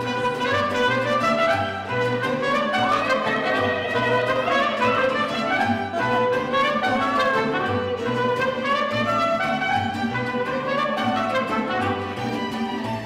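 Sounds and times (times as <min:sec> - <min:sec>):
mariachi band playing: 0:00.0 - 0:13.0.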